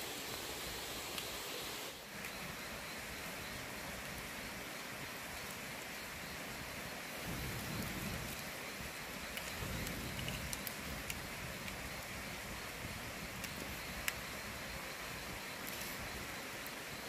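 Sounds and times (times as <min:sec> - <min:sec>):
wood fire crackling: 0:00.2 - 0:17.0.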